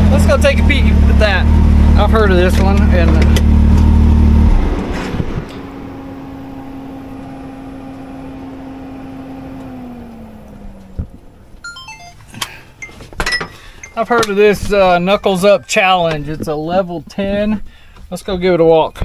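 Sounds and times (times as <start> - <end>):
engine running: 0.0 - 14.8
steady whine: 2.1 - 13.2
electronic beeps: 11.6 - 14.3.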